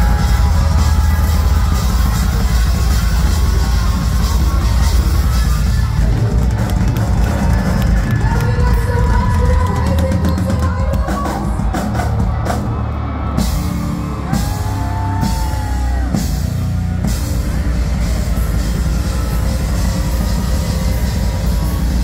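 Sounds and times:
live rock band: 0.0s - 22.0s.

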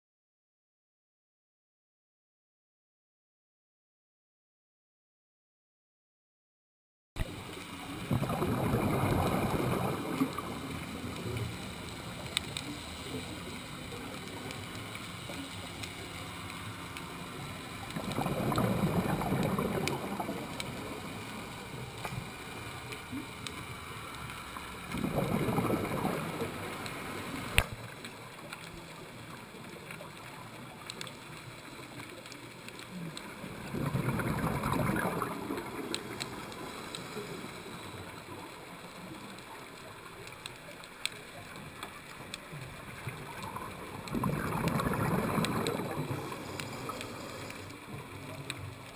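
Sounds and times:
steady underwater hiss: 7.2s - 48.9s
regulator exhalation bubbling: 8.1s - 10.5s, 17.9s - 20.5s, 24.9s - 26.7s, 33.6s - 38.0s, 43.5s - 47.8s.

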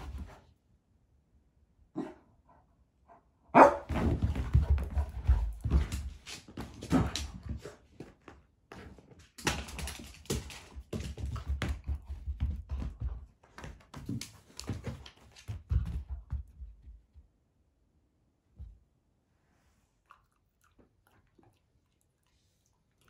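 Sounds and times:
dog paws scrabbling on floor: 0.0s - 0.5s, 3.8s - 17.3s.

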